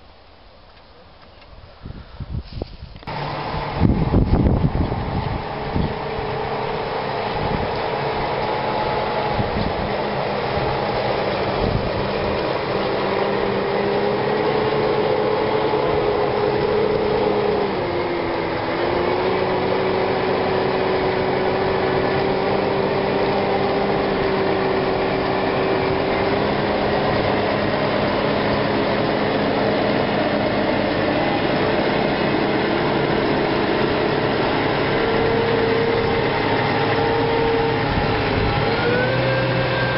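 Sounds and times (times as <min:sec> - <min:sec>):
tractor diesel engine under load: 0:01.8 - 0:39.9.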